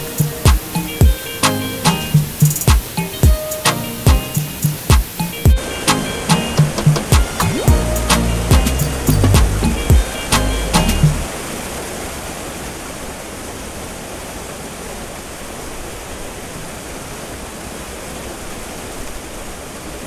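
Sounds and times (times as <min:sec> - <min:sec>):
music: 0:00.0 - 0:11.3.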